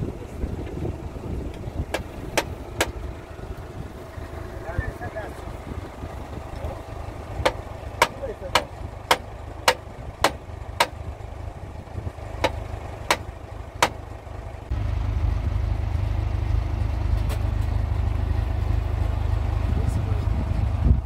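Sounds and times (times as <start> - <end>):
tractor engine rumbling: 0.0 - 21.0
sharp knocks: 1.9 - 3.0, 7.4 - 11.0, 12.4 - 14.0.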